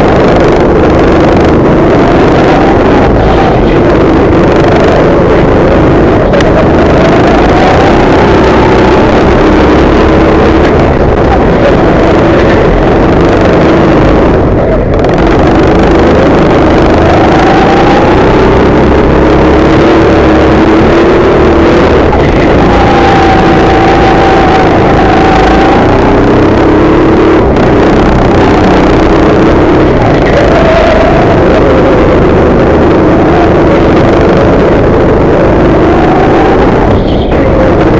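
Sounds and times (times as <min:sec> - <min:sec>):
go-kart engine revving: 0:00.0 - 0:37.9.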